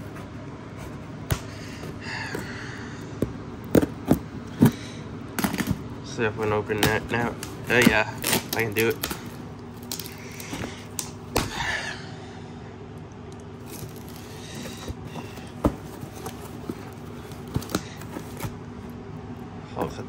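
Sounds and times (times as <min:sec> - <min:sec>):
packaging clicks and knocks: 0:03.2 - 0:05.8, 0:06.7 - 0:11.2, 0:13.6 - 0:18.6
packaging rustle: 0:06.8 - 0:11.0, 0:13.6 - 0:18.6.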